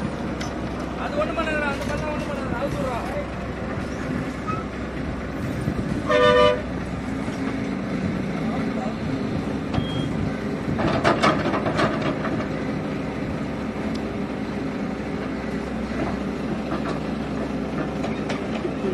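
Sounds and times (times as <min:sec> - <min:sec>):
heavy diesel engines under load: 0:00.0 - 0:18.9.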